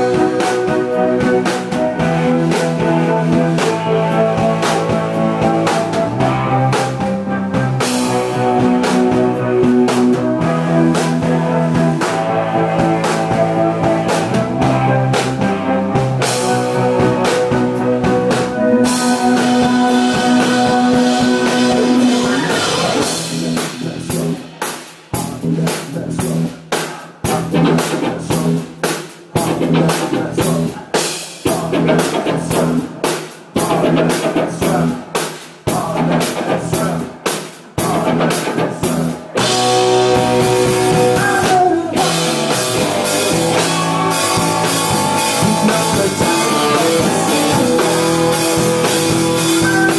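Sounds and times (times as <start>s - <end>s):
electric guitar: 0.0s - 28.7s, 29.3s - 49.9s
drum kit: 0.0s - 49.9s
rock band playing: 0.0s - 49.9s.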